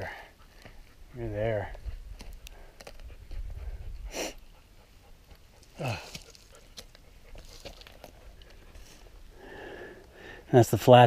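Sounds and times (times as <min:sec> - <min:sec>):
wind rumble on microphone: 0:01.6 - 0:04.2
person breathing hard: 0:02.5 - 0:04.5, 0:05.7 - 0:06.4, 0:08.8 - 0:10.5
person grunting: 0:05.8 - 0:06.2.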